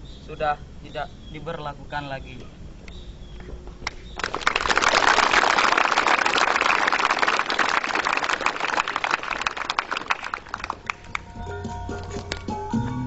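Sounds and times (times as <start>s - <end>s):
crowd applauding: 4.2s - 12.4s.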